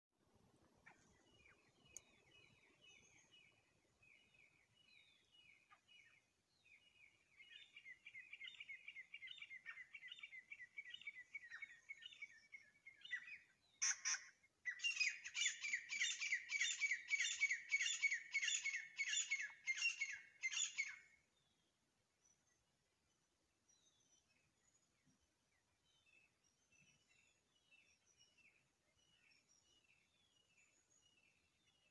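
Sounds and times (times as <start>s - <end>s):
francolins calling: 13.8s - 21.0s.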